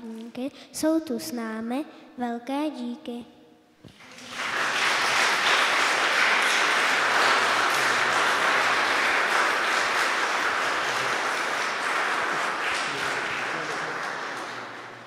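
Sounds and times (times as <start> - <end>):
crowd clapping: 3.9 - 15.0.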